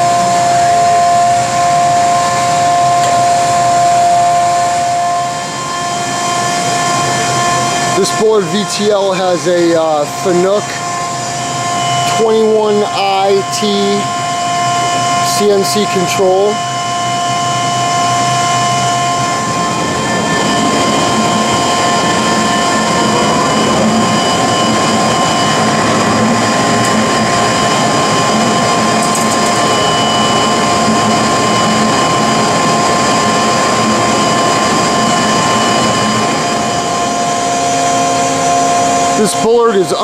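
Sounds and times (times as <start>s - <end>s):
lathe machine hum and whine: 0.0s - 40.0s.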